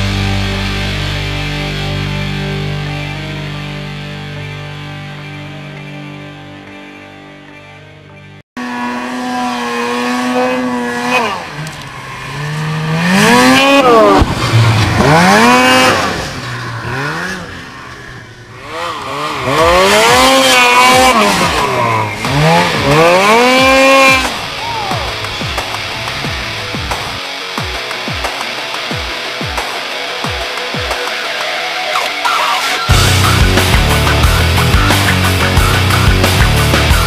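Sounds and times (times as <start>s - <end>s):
snowmobile engines revving: 8.6s - 27.3s.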